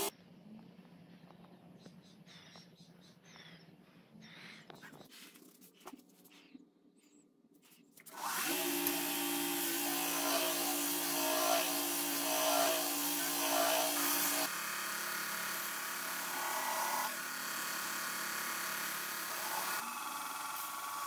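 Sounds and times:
belt grinder motor running: 8.2s - 21.0s
steel grinding on belt: 8.3s - 19.9s.

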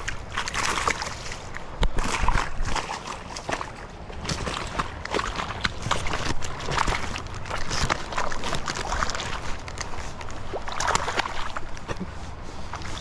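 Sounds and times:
river water splashing: 0.0s - 13.0s.

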